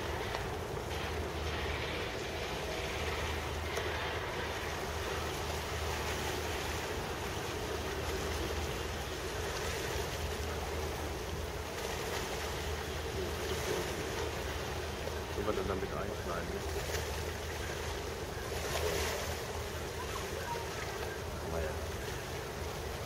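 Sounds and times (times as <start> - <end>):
boat engine droning: 0.0 - 23.0
water noise: 0.0 - 23.0
wind: 0.0 - 23.0.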